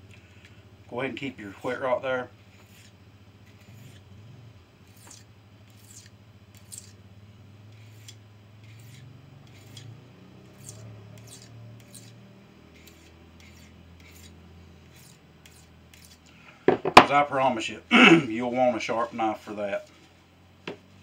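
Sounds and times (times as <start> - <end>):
knife scraping on whetstone: 2.5 - 4.1, 4.9 - 7.0, 7.7 - 16.3.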